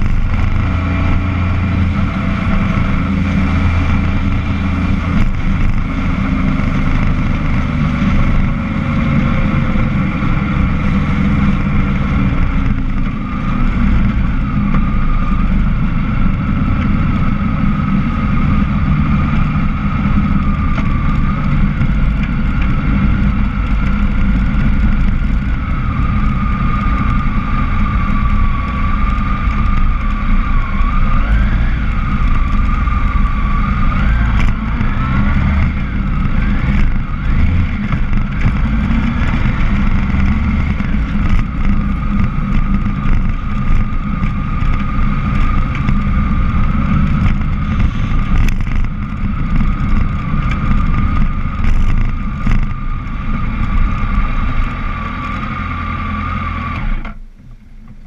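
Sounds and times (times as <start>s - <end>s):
road and wind rumble: 0.0s - 58.0s
vehicle engine running: 0.0s - 58.0s.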